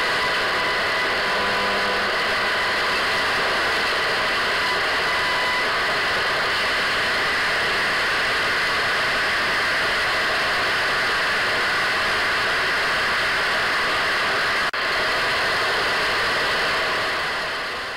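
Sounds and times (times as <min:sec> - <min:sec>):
radio static hiss: 0:00.0 - 0:08.2.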